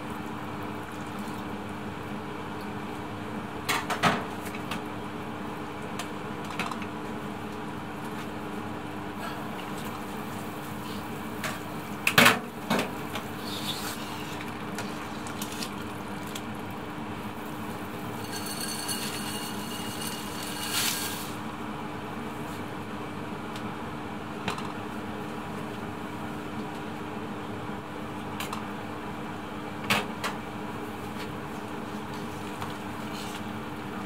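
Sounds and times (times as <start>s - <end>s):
soup boiling in a pot: 4.9s - 24.0s
pot clanking: 18.1s - 21.3s.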